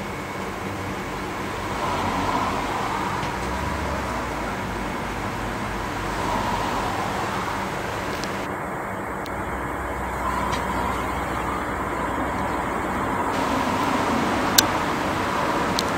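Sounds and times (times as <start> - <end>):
faint hum: 0.0 - 15.9
low rumble: 0.7 - 15.9
hiss: 1.1 - 8.5, 13.3 - 15.9.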